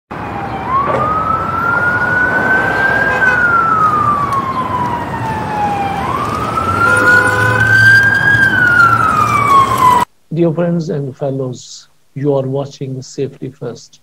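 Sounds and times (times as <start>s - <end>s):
siren wailing: 0.1s - 10.1s.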